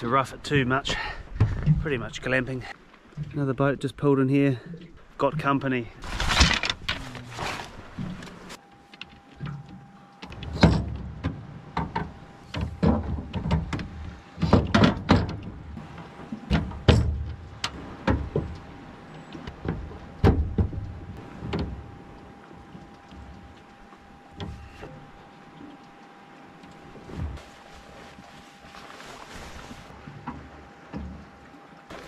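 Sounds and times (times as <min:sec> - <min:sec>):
gear knocking and rustling: 0:06.0 - 0:08.6.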